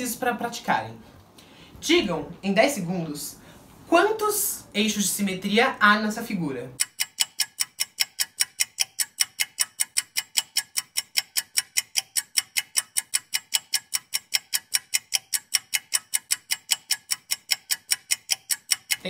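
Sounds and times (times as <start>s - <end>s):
clock timer ticking: 6.8s - 19.0s.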